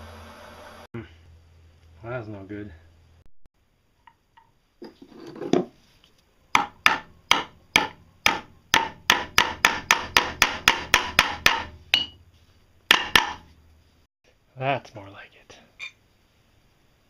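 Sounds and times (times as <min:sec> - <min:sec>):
hammer striking metal: 0:06.6 - 0:12.2, 0:12.9 - 0:13.5.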